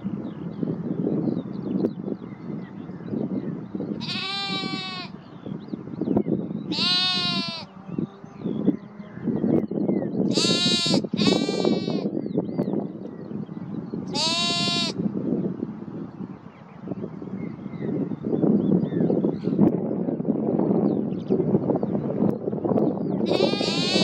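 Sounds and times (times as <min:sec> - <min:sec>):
lambs bleating: 0:04.0 - 0:05.2, 0:06.7 - 0:07.7, 0:10.3 - 0:12.0, 0:14.1 - 0:15.0, 0:23.3 - 0:24.0.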